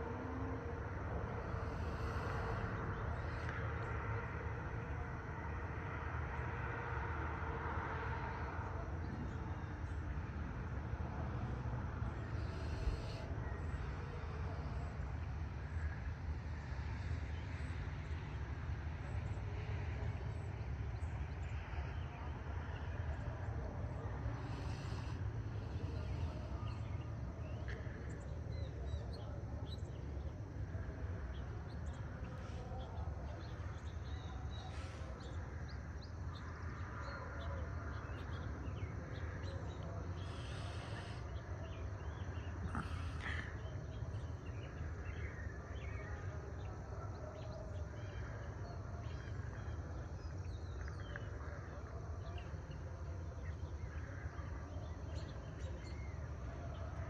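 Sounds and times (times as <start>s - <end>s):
steady low rumble: 0.0s - 45.6s
birds chirping: 20.3s - 57.0s.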